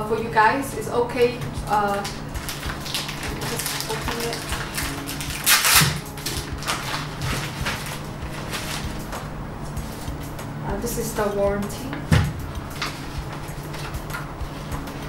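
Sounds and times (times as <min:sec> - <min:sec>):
plastic and paper crinkling: 0:01.9 - 0:09.2, 0:12.7 - 0:15.0.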